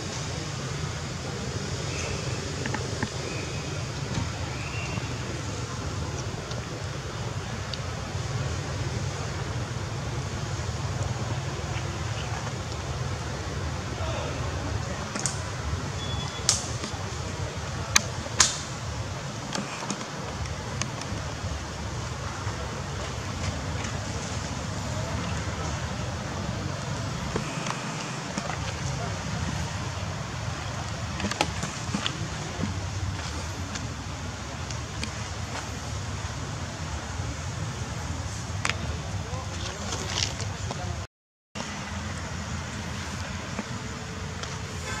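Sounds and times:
steady low rumble: 0.0 - 39.9
sharp clicks and ticks: 15.1 - 15.5, 17.9 - 18.7.

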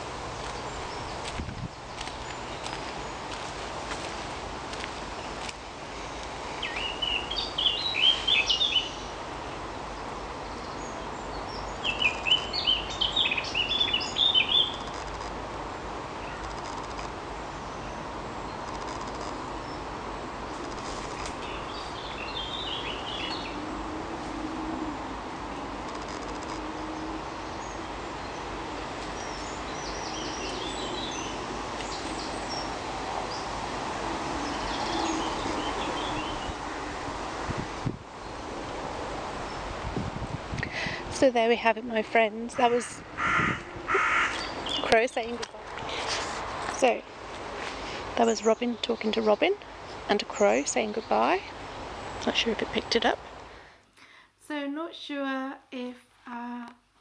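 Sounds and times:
outdoor background hiss: 0.0 - 57.0
steady background noise: 0.0 - 57.0
robin singing: 6.6 - 9.2, 10.4 - 15.0, 21.4 - 23.6, 27.4 - 32.7, 42.5 - 46.0.

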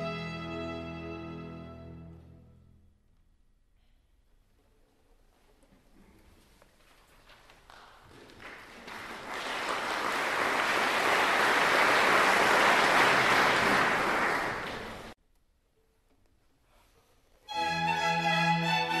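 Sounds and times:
audience applause: 7.7 - 15.2.

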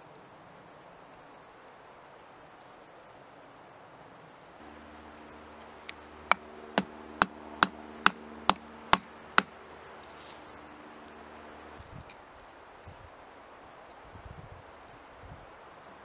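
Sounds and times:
knife chopping wooden stick: 5.9 - 9.6.

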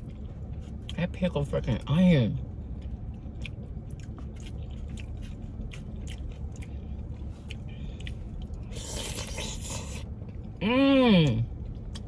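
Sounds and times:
low steady rumble: 0.0 - 12.0
person chewing food: 2.6 - 10.6, 11.2 - 12.0.

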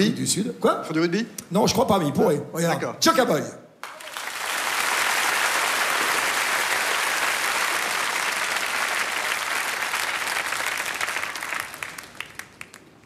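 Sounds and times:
audience applauding: 3.8 - 13.0.

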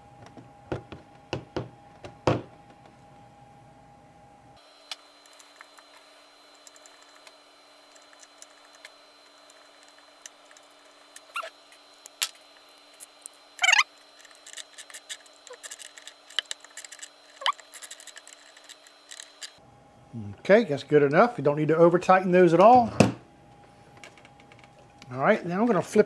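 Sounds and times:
short squeaks: 11.2 - 11.6, 13.6 - 13.9.

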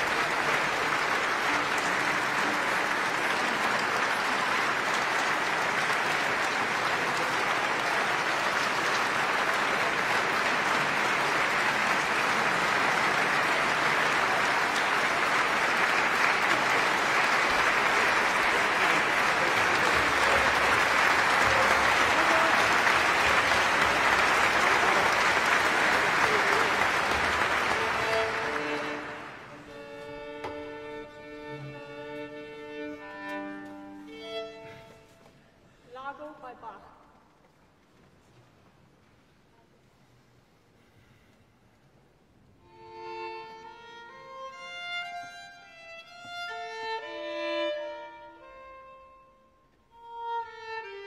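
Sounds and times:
large audience applauding: 0.0 - 29.8.

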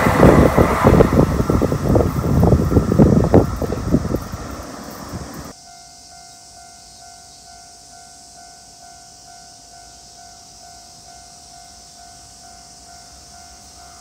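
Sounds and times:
level crossing warning bell: 2.4 - 14.0
steady high hiss: 4.2 - 14.0.

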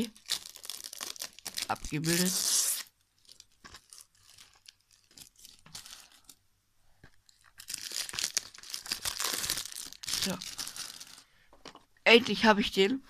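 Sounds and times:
plastic shrink-wrap crinkling: 0.0 - 6.4, 7.1 - 11.3.

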